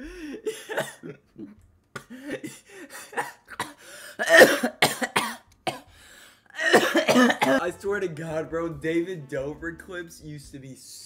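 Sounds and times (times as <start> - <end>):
man coughing: 0.0 - 5.9, 6.6 - 7.6.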